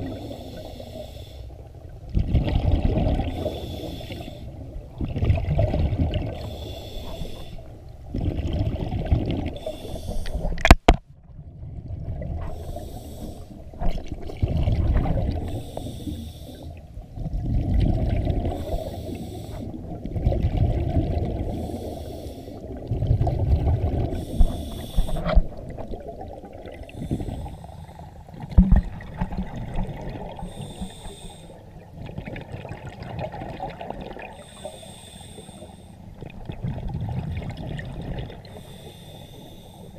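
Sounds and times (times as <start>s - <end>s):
hissing regulator inhale: 0.0s - 1.6s, 3.3s - 4.6s, 6.4s - 7.8s, 9.6s - 10.6s, 12.5s - 13.7s, 15.4s - 16.8s, 18.5s - 19.8s, 21.5s - 22.8s, 24.1s - 25.4s, 26.8s - 28.3s, 30.4s - 31.7s, 34.3s - 36.1s, 38.4s - 39.9s.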